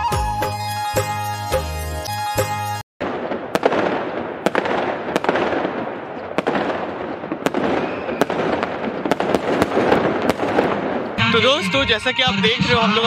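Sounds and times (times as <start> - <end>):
fireworks crackle: 3.0 - 11.2
fireworks bangs: 3.0 - 11.6.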